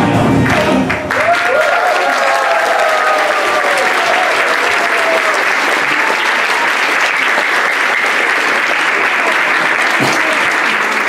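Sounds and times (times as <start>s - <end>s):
audience applauding: 0.4s - 11.0s.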